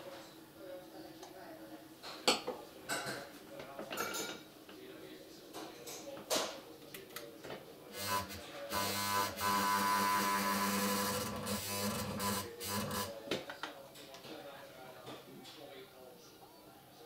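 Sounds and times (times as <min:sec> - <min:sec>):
sewing machine motor hum: 0:08.0 - 0:13.2.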